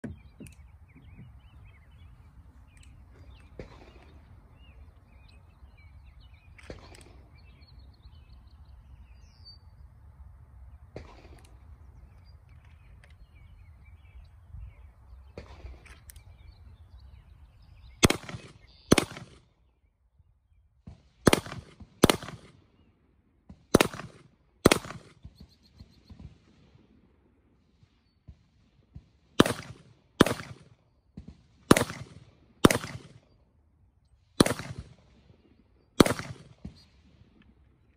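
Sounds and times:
birds chirping faintly: 0.0 - 20.9
handgun shots: 18.0 - 19.4, 21.3 - 22.5, 23.7 - 25.1, 29.4 - 30.7, 31.7 - 33.2, 34.4 - 34.9, 36.0 - 36.8.

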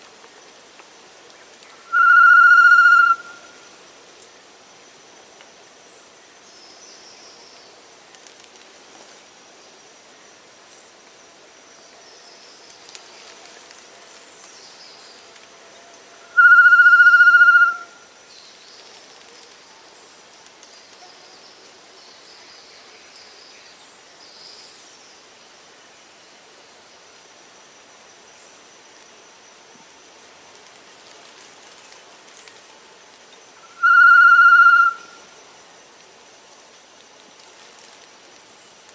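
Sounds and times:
high insect whine: 0.0 - 38.9
loud whistled note: 1.9 - 3.2, 16.4 - 17.8, 33.8 - 35.0.

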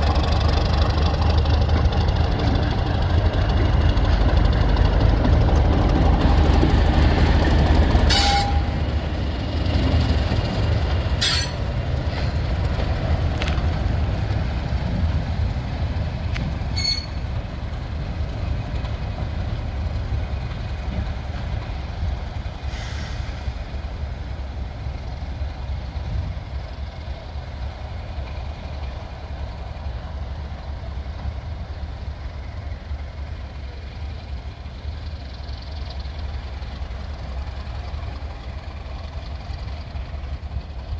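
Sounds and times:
diesel locomotive engine rumbling: 0.0 - 40.9.

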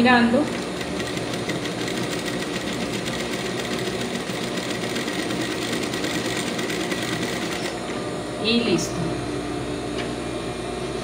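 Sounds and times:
sewing machine stitching: 0.4 - 7.8.

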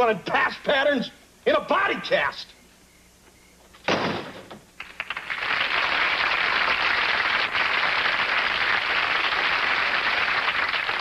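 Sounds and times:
door slamming: 3.8 - 4.6
studio audience applause: 4.8 - 11.0.

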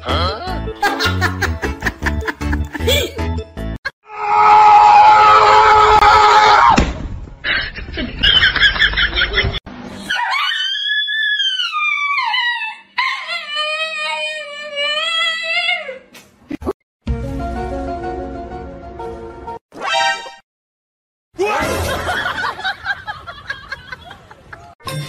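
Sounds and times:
music: 0.0 - 3.8, 17.0 - 20.4
loud held scream: 4.0 - 6.8.

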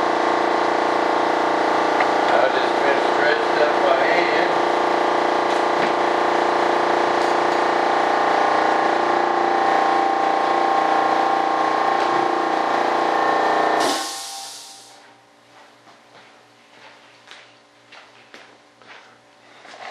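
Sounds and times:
hissing air: 13.8 - 15.0.

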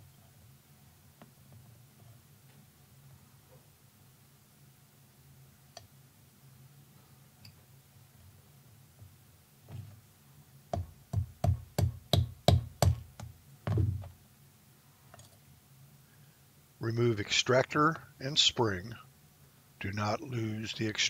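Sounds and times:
mallet tapping pin punch: 10.7 - 13.3
dull thump: 13.6 - 14.2.

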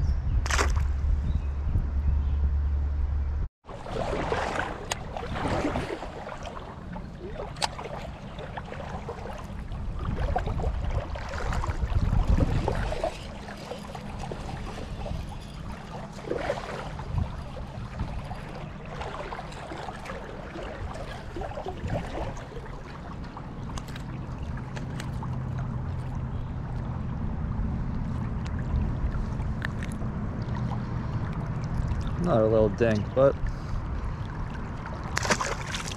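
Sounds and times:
steady low rumble: 0.0 - 35.9
creek water gurgling: 3.6 - 35.9.

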